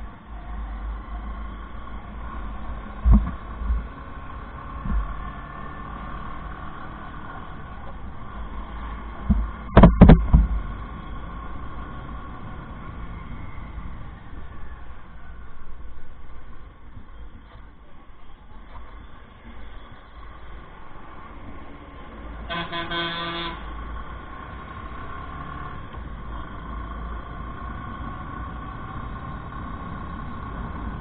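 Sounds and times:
road and wind rumble: 0.0 - 31.0
thuds: 3.0 - 3.9, 4.8 - 5.1, 9.2 - 10.7.

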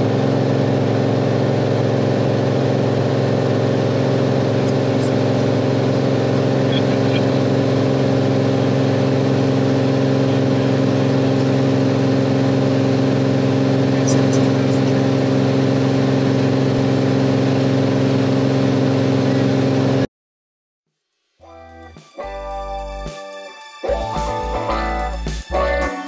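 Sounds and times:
propeller plane engine droning: 0.0 - 20.1.

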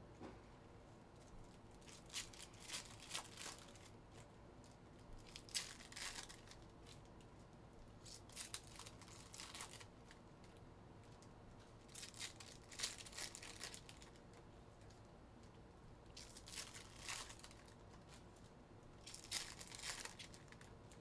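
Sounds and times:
foil wrappers tearing and crinkling: 1.8 - 4.2, 5.2 - 7.2, 8.0 - 10.2, 11.9 - 14.2, 16.2 - 18.2, 19.0 - 21.0.

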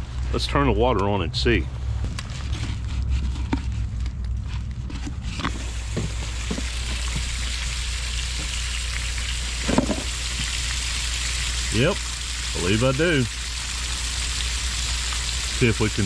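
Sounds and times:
pressurised water spraying hiss: 5.5 - 16.0
valve clicks and knocks: 9.6 - 10.5.

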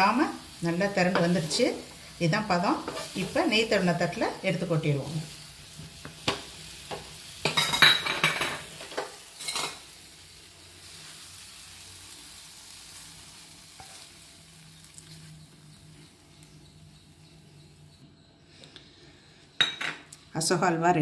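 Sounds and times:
spatula scraping frying pan: 1.0 - 3.6.

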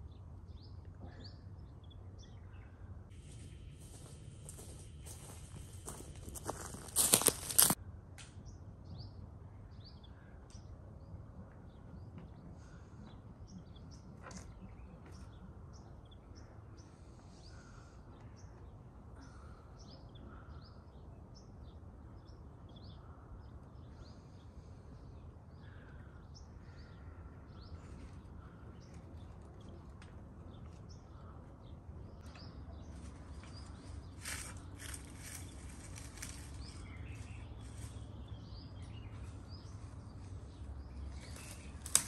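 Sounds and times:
wild birds chirping: 0.0 - 7.8, 8.4 - 42.0.

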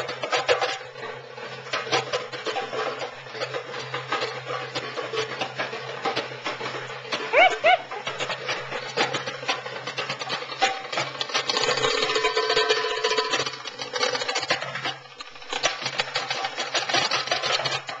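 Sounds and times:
goblet drum played by hand: 7.3 - 8.0.

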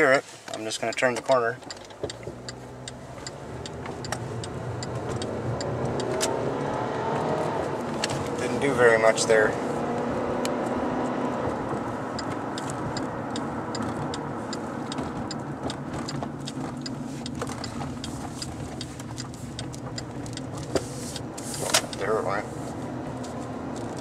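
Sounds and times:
car road and engine noise: 0.0 - 24.0
sharp tick: 0.5 - 6.3, 12.2 - 22.1.

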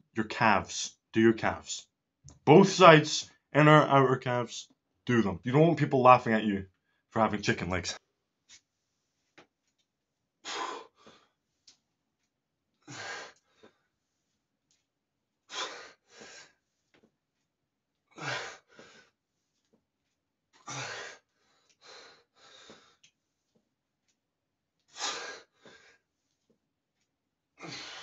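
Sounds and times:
man breathing quietly: 10.4 - 11.8, 20.7 - 23.7, 24.9 - 26.5.

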